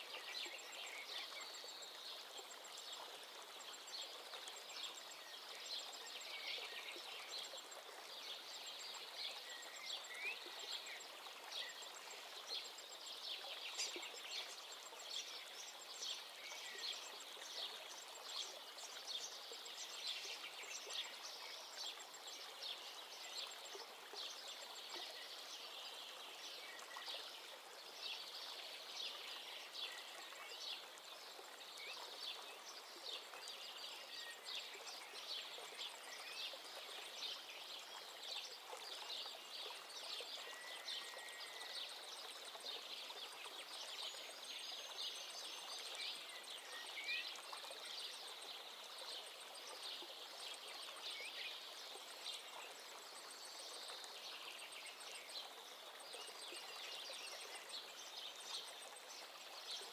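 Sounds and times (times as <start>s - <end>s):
rippling water: 0.0s - 59.9s.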